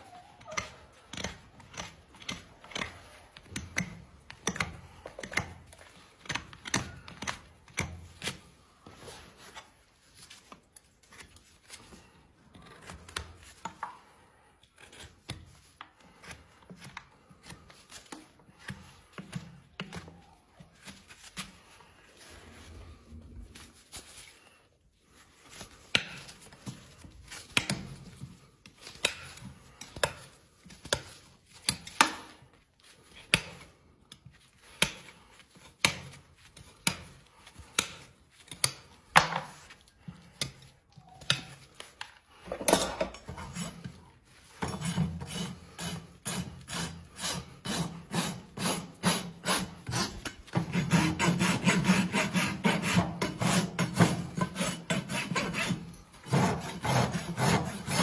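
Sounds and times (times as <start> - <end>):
hand tools scraping hoof: 0.0 - 9.8, 25.1 - 58.0
rasp filing hoof: 43.2 - 58.0.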